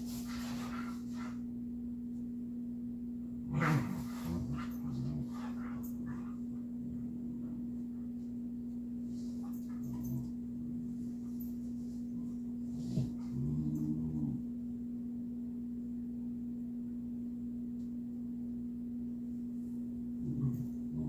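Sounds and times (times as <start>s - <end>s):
steady low hum: 0.0s - 21.0s
dog low vocal sound: 12.2s - 14.5s, 20.2s - 21.0s.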